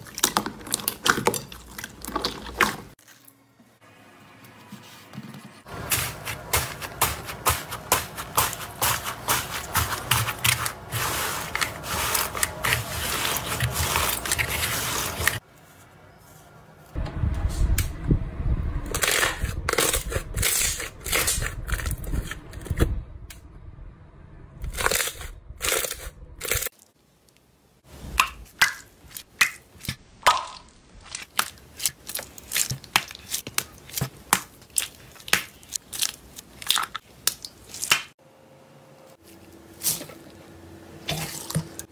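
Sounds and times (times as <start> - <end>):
slime squelching: 0.0 - 3.4, 5.7 - 15.4, 28.1 - 38.1, 41.0 - 41.9
crunchy slime crackling: 30.2 - 38.1.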